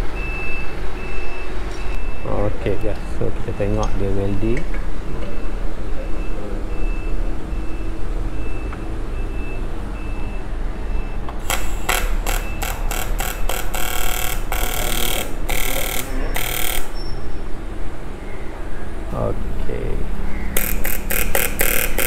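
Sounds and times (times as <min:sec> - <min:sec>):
welding arc: 0:11.4 - 0:17.0, 0:20.6 - 0:22.0.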